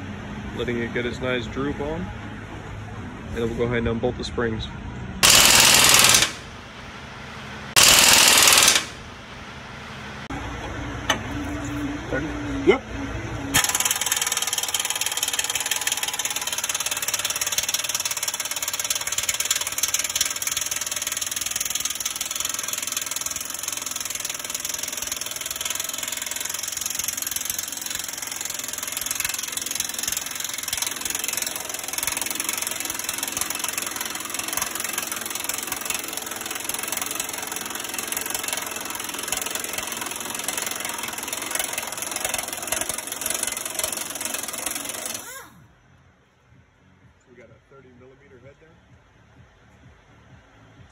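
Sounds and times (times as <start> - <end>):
pneumatic impact wrench hammering: 5.2 - 6.6, 7.8 - 9.1, 13.6 - 45.6.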